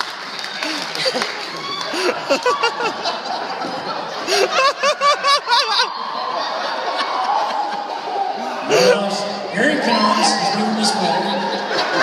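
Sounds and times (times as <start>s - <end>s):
man laughing: 1.9s - 3.3s, 4.2s - 5.9s, 8.6s - 9.1s
audience laughter: 2.0s - 9.2s, 11.3s - 12.0s.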